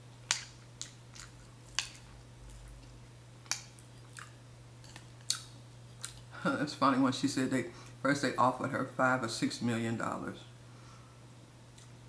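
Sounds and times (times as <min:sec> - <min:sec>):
faint low hum: 0:00.0 - 0:12.0
person chewing: 0:00.3 - 0:06.3
sharp mouth clicks and smacks: 0:05.2 - 0:06.2.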